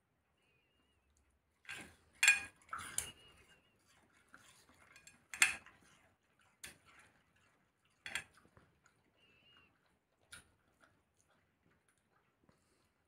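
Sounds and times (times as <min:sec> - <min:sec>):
cutlery clinking on plate: 0:02.2 - 0:03.1.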